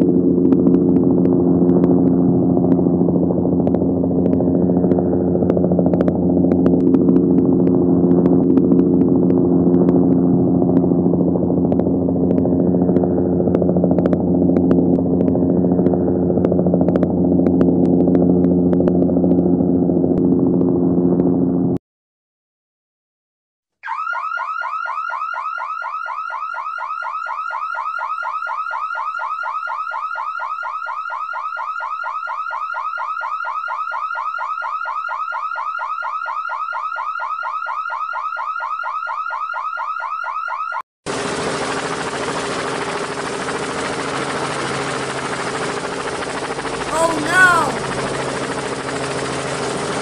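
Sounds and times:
toy siren chirping: 23.8 - 25.0.

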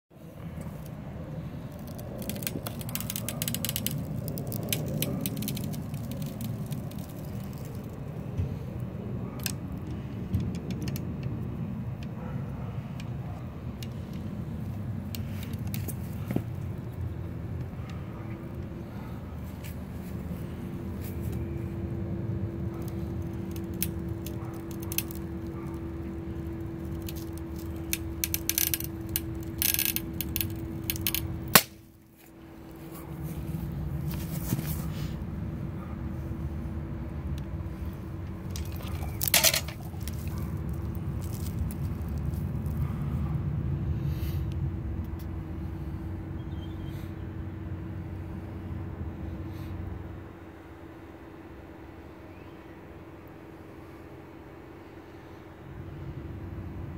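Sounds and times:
faint hum: 0.2 - 56.9
small clicks and creaks: 1.6 - 12.2, 22.7 - 31.4, 38.2 - 43.0.

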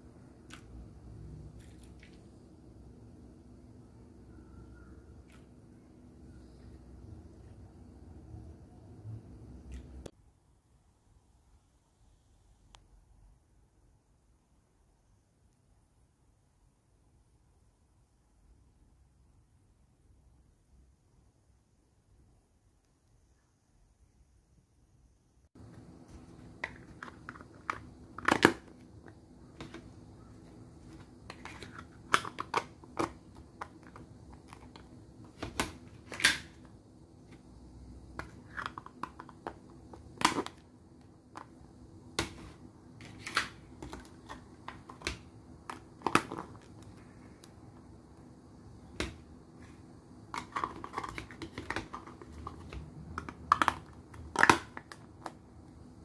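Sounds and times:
faint steady hum: 0.0 - 56.0
plastic lids snapping shut: 26.6 - 28.7.

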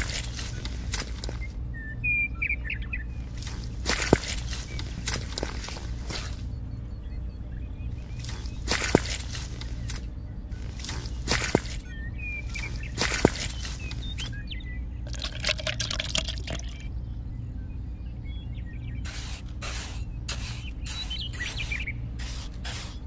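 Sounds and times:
steady low hum: 0.0 - 23.0
trowel scraping wet cement: 19.1 - 23.0.

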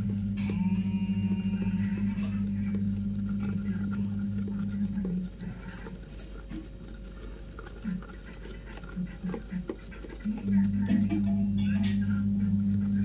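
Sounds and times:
low steady hum: 0.0 - 13.0
metal stirrer scraping in plastic jar: 0.0 - 13.0.

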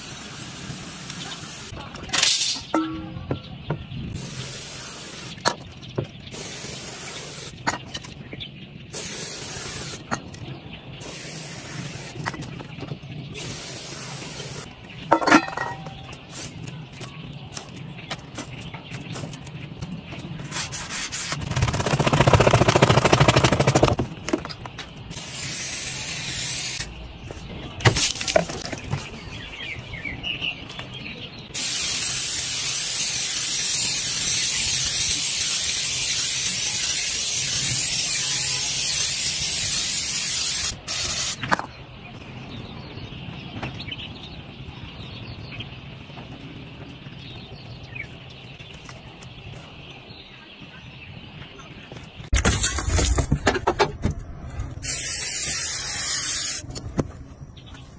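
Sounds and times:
aerosol spray can hissing: 4.2 - 5.4, 6.4 - 7.5, 9.0 - 10.0, 11.0 - 12.2, 25.2 - 26.8, 31.6 - 41.4, 54.8 - 56.6.

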